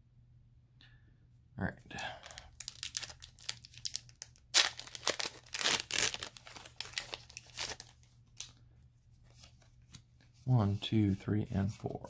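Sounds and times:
foil wrapper crinkling and tearing: 0:02.2 - 0:08.5.

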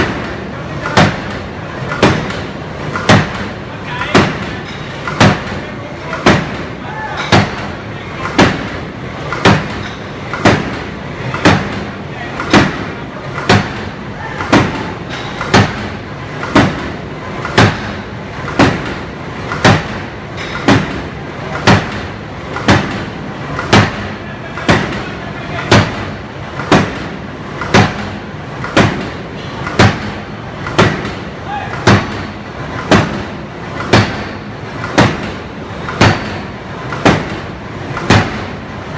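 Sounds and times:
forge shop noise: 0:00.0 - 0:38.9
forging hammer striking steel: 0:06.2 - 0:19.0.

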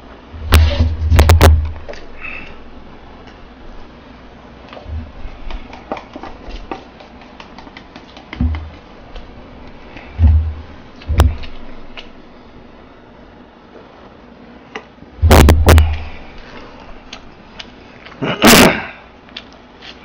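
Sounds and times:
loud thumps: 0:00.3 - 0:02.0, 0:10.1 - 0:11.9, 0:15.2 - 0:16.4
paper cups and chopsticks handled: 0:04.7 - 0:10.1.

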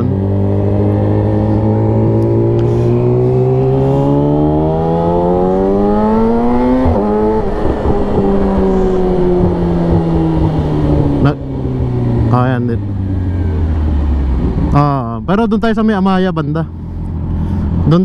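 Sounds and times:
motorcycle engine revving: 0:00.0 - 0:15.2
wind noise: 0:00.6 - 0:12.3.

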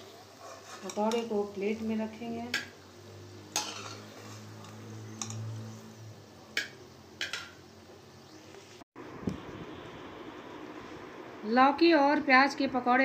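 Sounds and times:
metal ladle clinking on pan: 0:03.5 - 0:05.5, 0:06.6 - 0:07.6.

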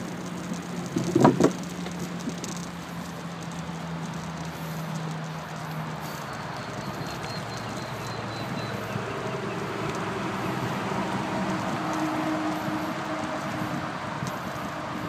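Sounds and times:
bicycle rolling and rattling: 0:00.0 - 0:15.0
bicycle wheels knocking: 0:00.0 - 0:15.0.

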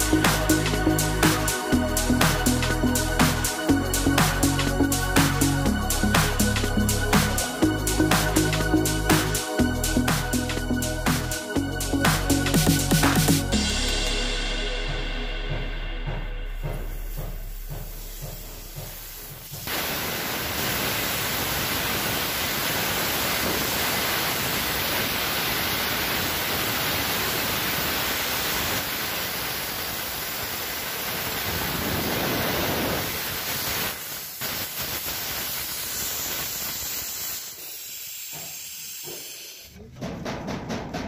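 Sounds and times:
compressed air hissing: 0:00.0 - 0:14.4, 0:16.8 - 0:39.8.

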